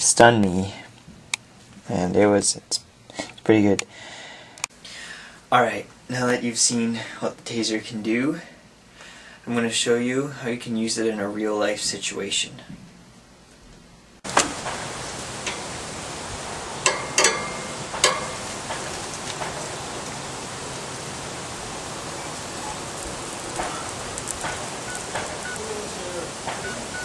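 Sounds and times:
steady hiss: 14.2 - 27.0
metal tongs clacking on grill: 16.8 - 18.8.

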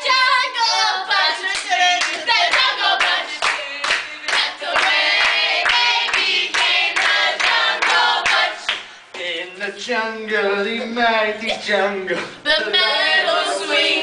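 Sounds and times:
people singing a cappella: 0.0 - 14.0
rhythmic hand clapping: 1.4 - 9.4.

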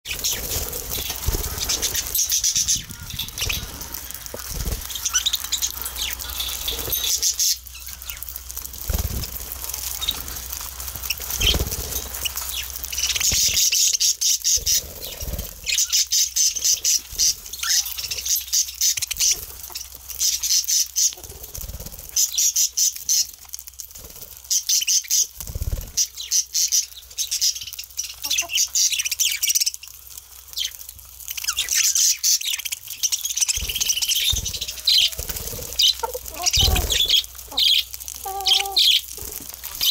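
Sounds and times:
budgerigars chattering and chirping: 0.1 - 8.2, 12.3 - 21.3, 25.9 - 29.7, 31.4 - 39.1
seeds clicking as husked: 0.1 - 39.9.

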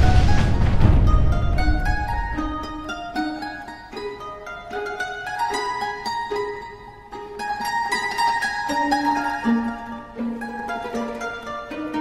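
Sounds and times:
heavy low rumble: 0.0 - 3.3
plucked-string music: 0.0 - 12.0.

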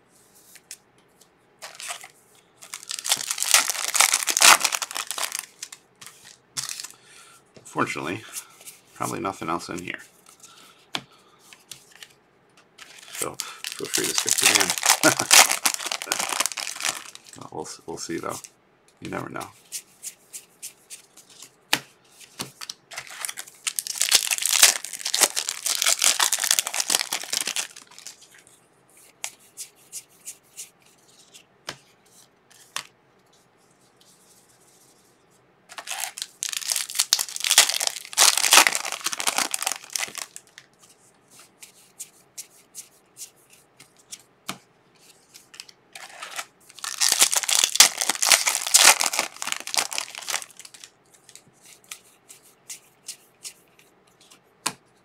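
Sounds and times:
foil wrappers crinkling and tearing: 1.6 - 7.0, 12.8 - 17.4, 22.6 - 28.3, 35.7 - 40.7, 45.6 - 51.0.

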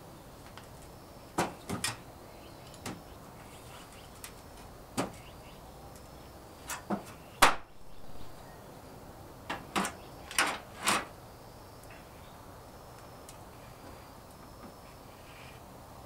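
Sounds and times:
metal roofing sheet creaking: 9.5 - 11.1.

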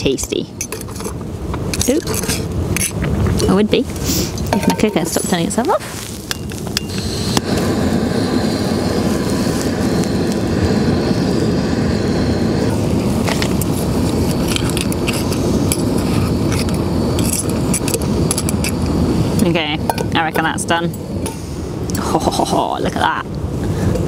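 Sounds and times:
outdoor rushing noise: 3.9 - 22.4.

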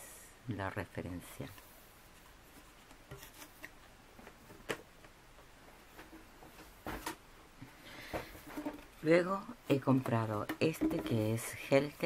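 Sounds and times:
paper rustling: 2.1 - 3.8.

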